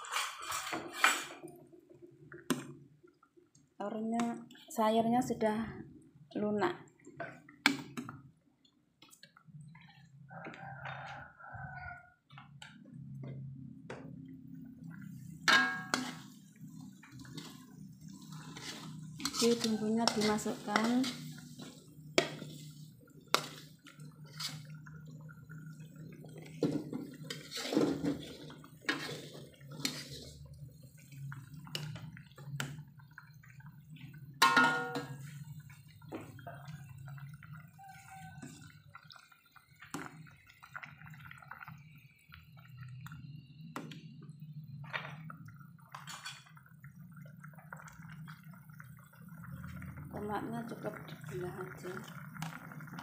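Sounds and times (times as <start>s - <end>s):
metal utensils scraping a wok: 0.0s - 1.4s, 15.4s - 16.4s, 17.2s - 24.7s, 27.2s - 30.5s
liquid dripping and splashing: 6.2s - 53.0s.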